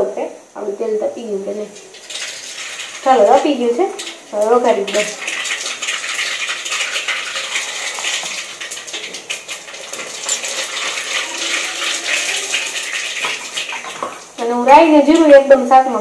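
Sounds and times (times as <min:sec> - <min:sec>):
seeds sizzling in hot oil: 0:00.6 - 0:16.0.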